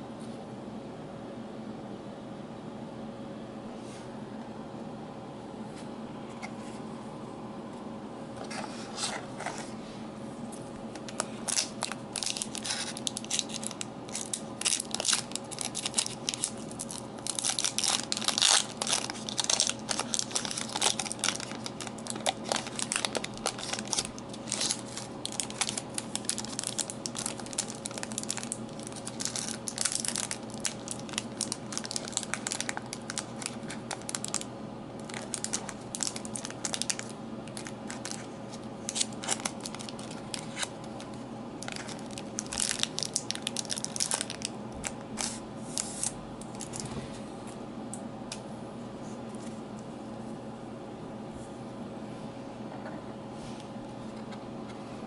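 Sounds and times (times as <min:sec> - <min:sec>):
foil wrapper crinkling: 0:10.9 - 0:46.8.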